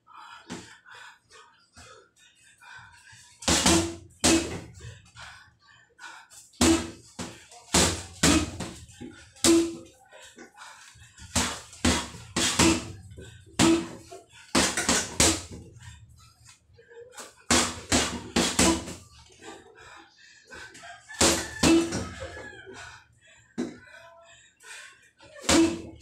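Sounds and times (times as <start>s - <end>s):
boxing gloves punching heavy bag: 3.4s - 4.8s, 6.6s - 8.8s, 9.4s - 9.8s, 11.2s - 15.7s, 17.5s - 19.0s, 21.2s - 22.0s, 25.4s - 26.0s.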